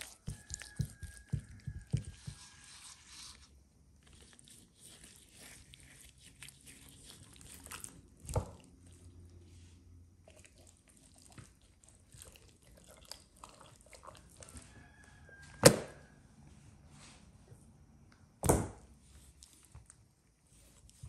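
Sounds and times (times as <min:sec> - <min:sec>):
knife chopping on wooden board: 0:00.0 - 0:02.5, 0:15.6 - 0:16.0.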